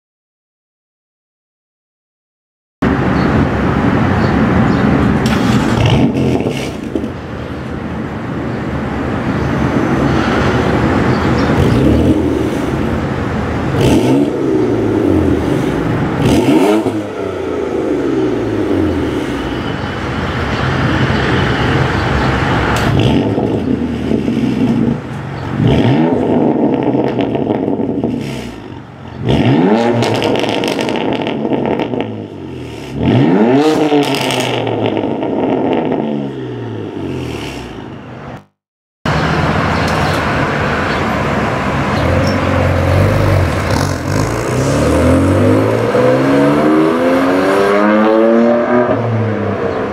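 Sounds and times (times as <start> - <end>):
car engine idling and revving: 2.8 - 49.9.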